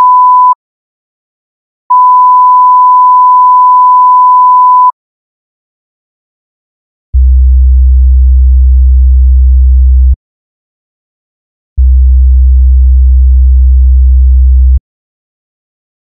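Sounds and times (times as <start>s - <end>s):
low sine-wave test tone: 7.2s - 10.2s, 11.8s - 14.8s.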